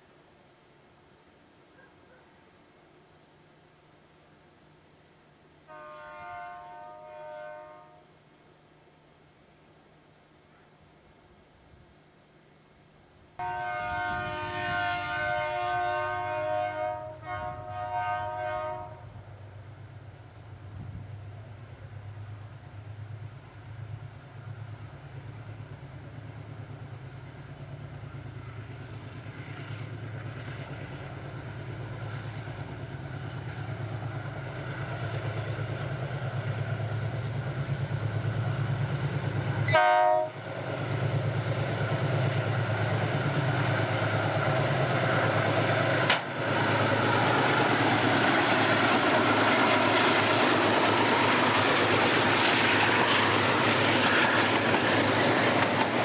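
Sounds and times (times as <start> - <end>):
train horn blast: 5.7 - 8.2, 13.4 - 19.2, 39.6 - 40.4
diesel locomotive engines rumbling: 13.1 - 56.0
train wheels on rails: 14.3 - 56.0.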